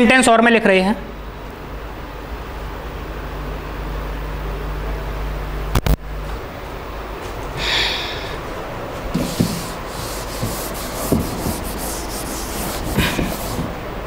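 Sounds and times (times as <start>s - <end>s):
duster rubbing on whiteboard: 9.1s - 13.8s.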